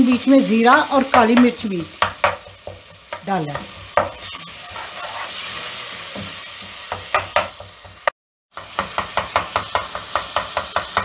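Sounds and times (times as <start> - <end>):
masala sizzling in hot oil: 0.0 - 11.0
wooden spoon stirring: 3.6 - 5.6.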